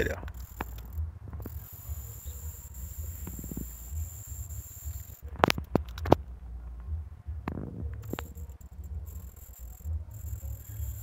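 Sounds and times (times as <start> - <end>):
insects chirring: 0.0 - 6.1, 8.0 - 11.0
sharp clicks and knocks: 5.2 - 6.3
wind rumble on microphone: 5.3 - 9.1.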